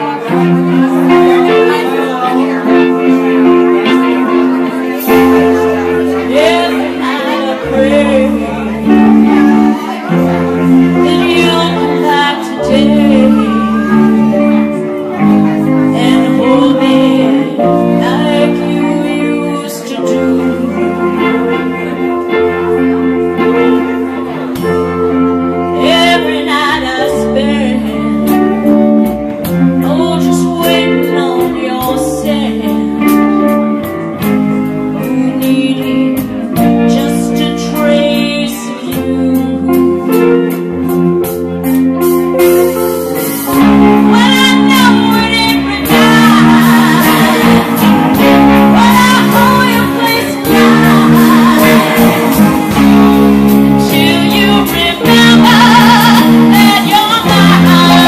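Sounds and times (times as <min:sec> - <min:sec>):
woman singing: 0:00.0 - 0:41.1, 0:43.5 - 0:58.0
live soul-blues band: 0:00.0 - 0:58.0.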